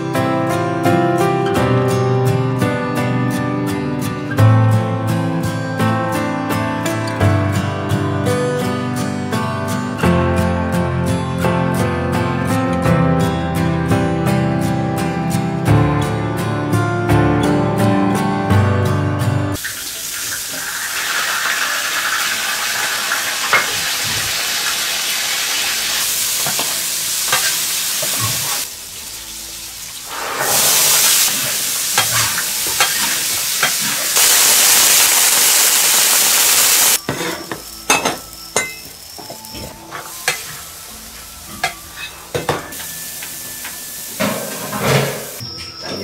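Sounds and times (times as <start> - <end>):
frying sizzle in a wok: 19.6 - 45.4.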